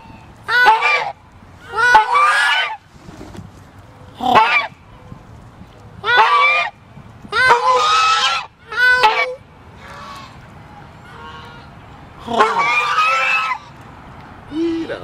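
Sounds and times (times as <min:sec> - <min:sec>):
goose honking: 0:00.0 - 0:02.8, 0:04.2 - 0:04.7, 0:06.0 - 0:06.8, 0:07.4 - 0:10.4, 0:11.0 - 0:13.8.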